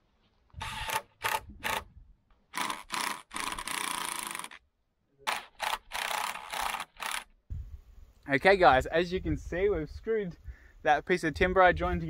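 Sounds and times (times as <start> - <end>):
power drill driving screws: 0.6 - 1.8, 2.5 - 4.6, 5.3 - 7.3.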